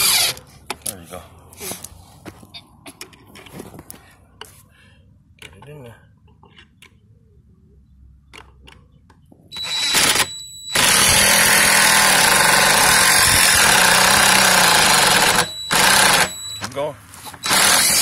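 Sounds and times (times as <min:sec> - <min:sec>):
impact driver driving screw into wood: 0:09.6 - 0:16.4, 0:17.4 - 0:18.0.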